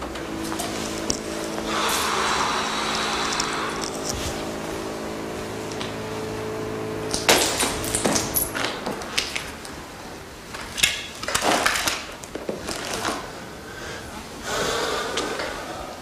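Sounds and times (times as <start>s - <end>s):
footsteps: 0.0s - 10.8s.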